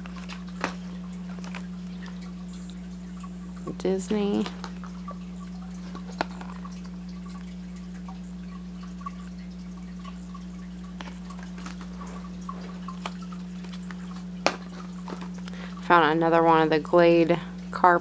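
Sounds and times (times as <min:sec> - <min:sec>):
plastic blister pack clicking: 0:00.0 - 0:01.7
low electrical hum: 0:00.0 - 0:18.0.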